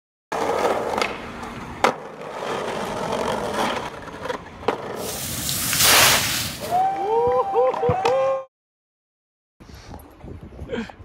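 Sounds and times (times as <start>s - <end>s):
skateboard wheels rolling: 0.3s - 8.1s
skateboard clacks: 0.4s - 5.0s
loud rushing noise: 5.0s - 6.7s.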